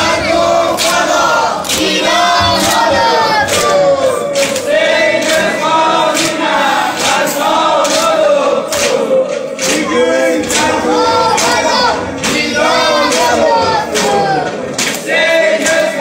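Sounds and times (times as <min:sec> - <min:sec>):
hands beating chests and clapping: 0:00.0 - 0:16.0
men chanting a lament: 0:00.0 - 0:16.0.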